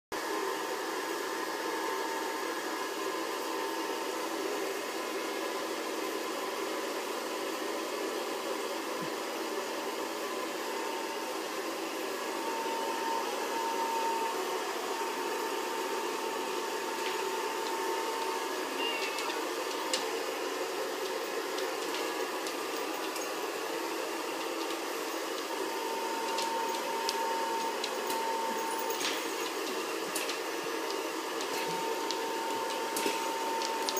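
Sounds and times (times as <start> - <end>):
appliance motor humming: 12.2 - 33.9.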